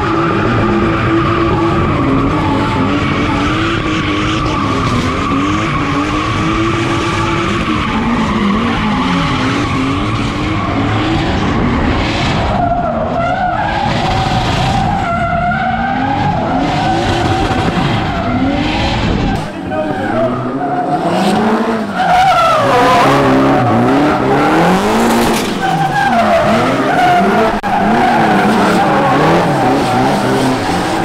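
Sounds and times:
car engine revving: 0.0 - 31.0
tyre screech: 12.5 - 31.0.

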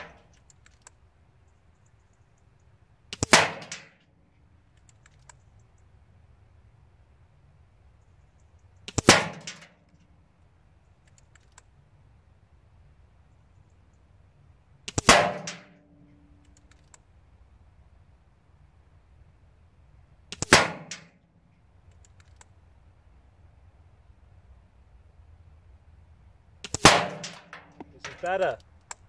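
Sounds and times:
faint clicks: 0.2 - 3.2, 4.0 - 5.9, 10.8 - 11.7, 16.1 - 17.1, 21.0 - 22.6, 27.5 - 29.0
air rifle shots: 3.1 - 4.0, 8.9 - 9.8, 14.9 - 15.8, 20.3 - 21.2, 26.6 - 28.6.

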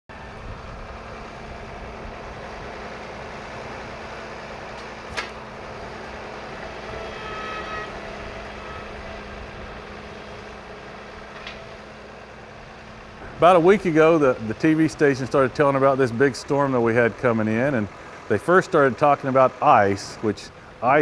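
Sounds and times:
tractor engine running: 0.1 - 21.0
brief whine: 6.9 - 9.2.

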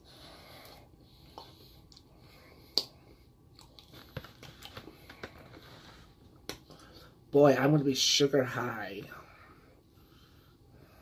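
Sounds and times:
person chewing cake: 0.6 - 7.0.

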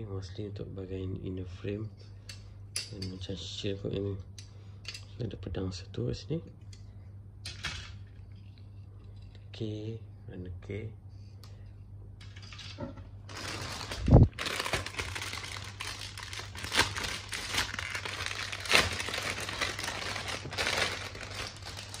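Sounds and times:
plastic bag crinkling: 13.2 - 22.0.

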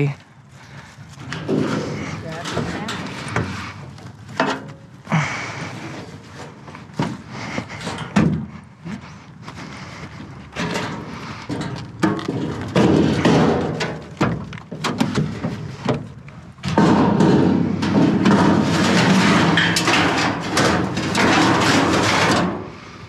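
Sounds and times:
sheet metal scraping and sliding: 1.2 - 8.4, 16.6 - 23.0
scrap sheet metal clunking: 1.2 - 8.6, 10.6 - 23.0.

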